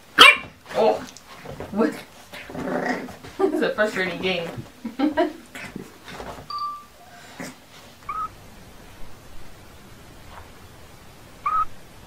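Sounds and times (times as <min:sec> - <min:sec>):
puppy squeaking: 0:08.1 - 0:08.3, 0:11.5 - 0:11.7.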